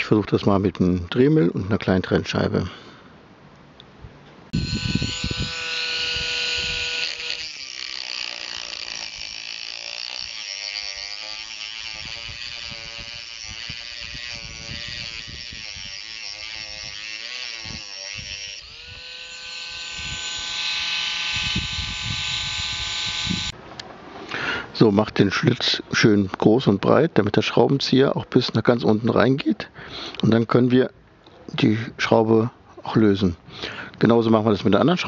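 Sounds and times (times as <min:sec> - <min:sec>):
rotary tool grinding a bolt: 0:04.5 - 0:23.6.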